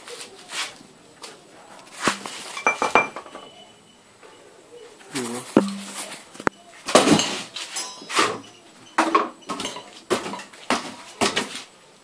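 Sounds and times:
metal scraping: 5.3 - 6.5.

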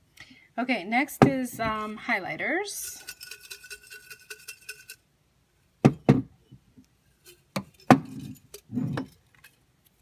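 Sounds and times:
paper slips rattling in glass jar: 2.8 - 5.0.

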